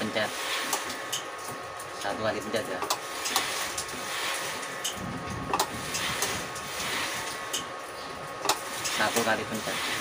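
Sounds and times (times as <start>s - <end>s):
machine motor running: 0.0s - 10.0s
sharp machine clicks: 4.8s - 7.7s, 8.4s - 9.4s.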